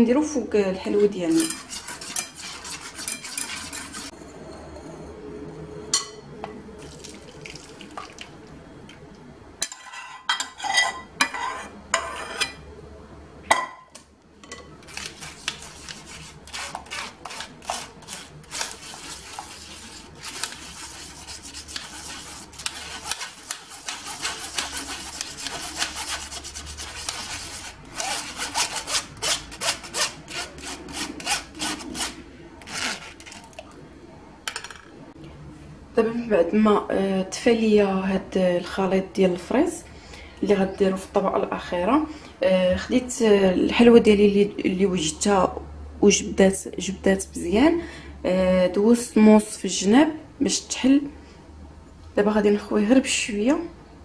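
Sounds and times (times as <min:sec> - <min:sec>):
spoon scraping through mesh sieve: 0:01.3 - 0:04.2, 0:14.8 - 0:33.6
whisk stirring in metal saucepan: 0:01.3 - 0:04.2, 0:14.8 - 0:33.6.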